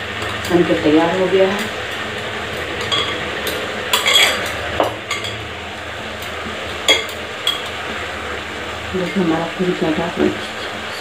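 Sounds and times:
frying hiss: 0:00.0 - 0:11.0.

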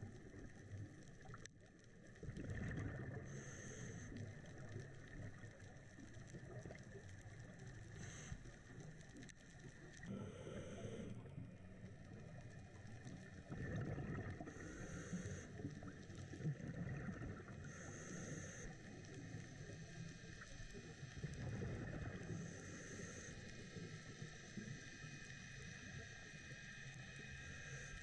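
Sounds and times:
exhaled air bubbling: 0:02.1 - 0:08.2, 0:13.2 - 0:18.3, 0:21.2 - 0:22.6.

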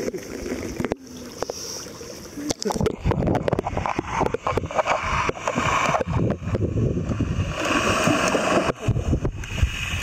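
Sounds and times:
water sloshing and gurgling: 0:00.0 - 0:10.0.

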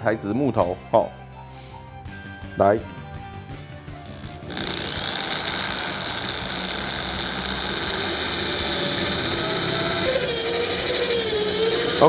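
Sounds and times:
electric drill boring into wood: 0:04.0 - 0:12.0.

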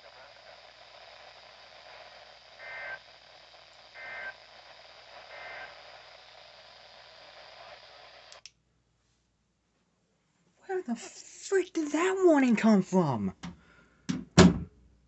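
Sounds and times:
radio static hiss: 0:00.0 - 0:08.4
two-tone data bursts: 0:02.6 - 0:03.2, 0:03.9 - 0:06.3.

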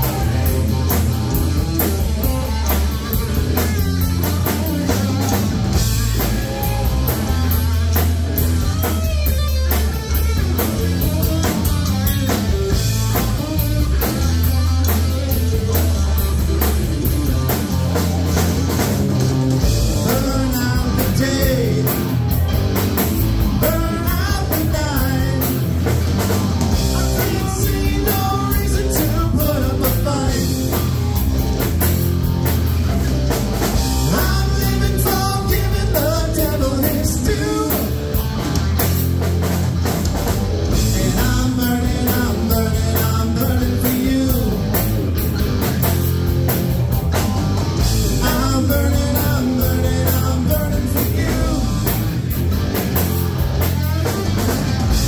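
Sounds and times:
distorted electric guitar: 0:00.0 - 0:55.0
drum kit: 0:00.0 - 0:55.0
electric bass: 0:00.0 - 0:55.0
lead vocal singing: 0:19.9 - 0:22.2, 0:23.6 - 0:25.7, 0:26.7 - 0:30.8, 0:34.0 - 0:38.0, 0:40.7 - 0:44.8, 0:48.1 - 0:52.1.

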